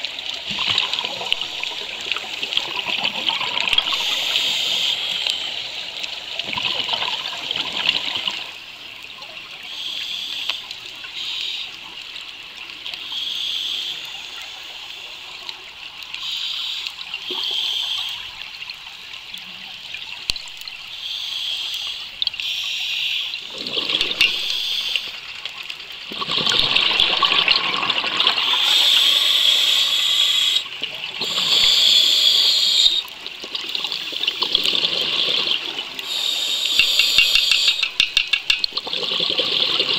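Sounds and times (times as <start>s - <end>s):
underwater bubbles bursting: 0.0s - 4.5s, 6.4s - 8.6s, 23.4s - 25.4s, 26.0s - 28.6s, 33.4s - 36.0s.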